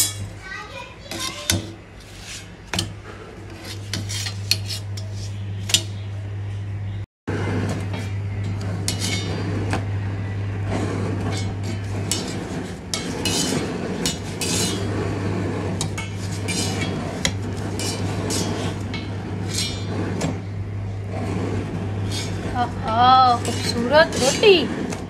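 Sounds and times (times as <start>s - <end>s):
metal tongs clinking and scraping: 0.0s - 0.3s, 7.9s - 9.4s, 11.2s - 14.9s, 15.8s - 20.3s, 23.3s - 25.0s
steady low hum: 0.0s - 25.0s.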